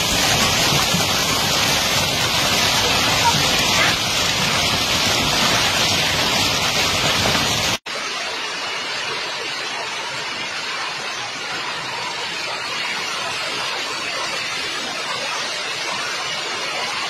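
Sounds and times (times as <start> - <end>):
hail and heavy rain pelting: 0.0 - 7.8.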